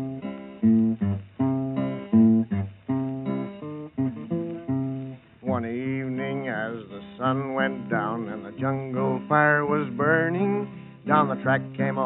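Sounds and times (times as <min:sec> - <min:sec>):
acoustic guitar strumming: 0:00.0 - 0:12.0
man singing: 0:05.4 - 0:12.0.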